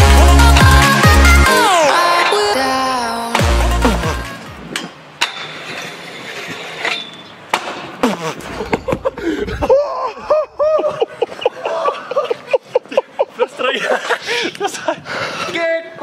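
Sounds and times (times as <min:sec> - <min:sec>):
people whooping and shouting: 0:09.6 - 0:12.2.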